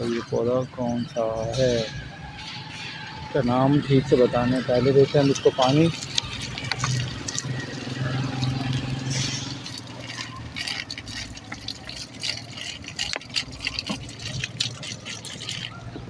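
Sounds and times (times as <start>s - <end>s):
water pouring onto soil: 3.5s - 16.0s.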